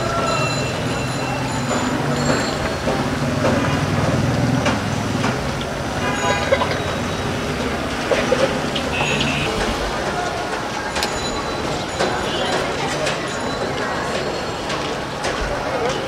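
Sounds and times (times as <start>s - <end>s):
busy street traffic: 0.0s - 16.0s.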